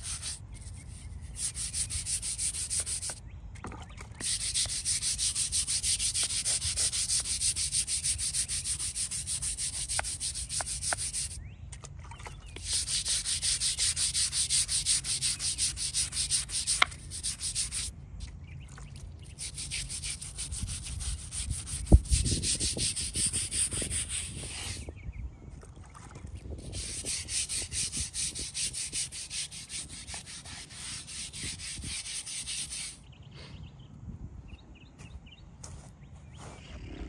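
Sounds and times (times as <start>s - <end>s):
brush scrubbing stone: 0.0s - 3.2s, 4.2s - 11.4s, 12.5s - 17.9s, 18.7s - 24.8s, 26.6s - 33.0s.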